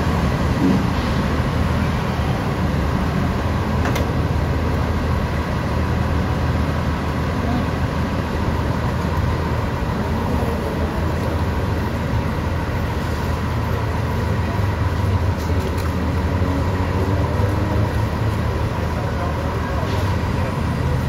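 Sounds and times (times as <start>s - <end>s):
city street traffic rumble: 0.0s - 21.0s.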